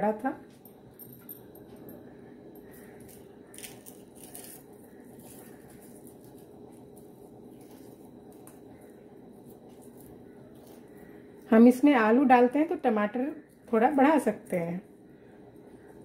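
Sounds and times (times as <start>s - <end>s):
steady low hum: 0.0s - 16.0s
soft squishes of peeling skin: 2.8s - 11.5s.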